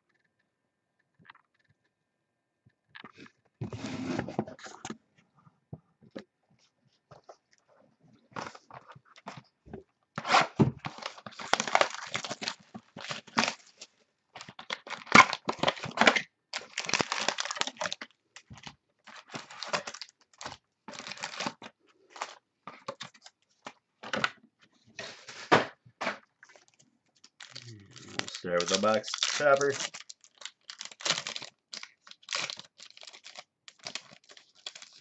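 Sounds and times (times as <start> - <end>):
plastic wrapping crinkling: 10.3 - 23.7, 26.4 - 35.0.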